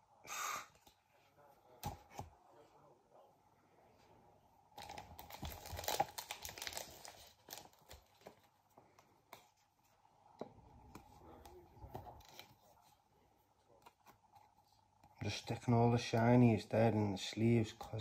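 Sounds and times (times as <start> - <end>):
plastic packaging crinkling: 4.8 - 8.5.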